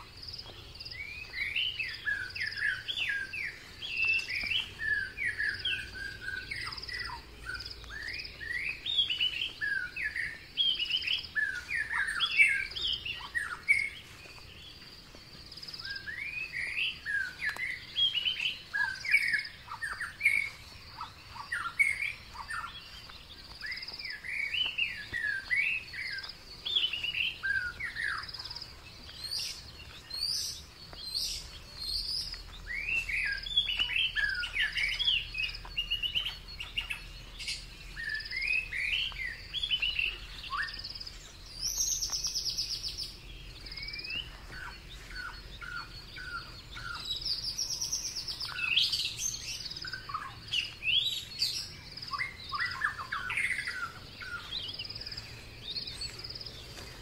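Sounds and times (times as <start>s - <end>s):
songbirds chirping: 0.0s - 57.0s.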